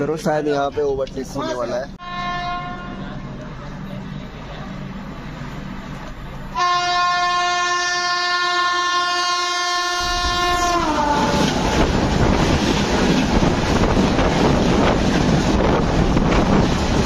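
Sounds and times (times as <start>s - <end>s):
locomotive horn blast: 2.0s - 3.1s, 6.5s - 11.6s
train coaches rushing past: 10.0s - 17.0s.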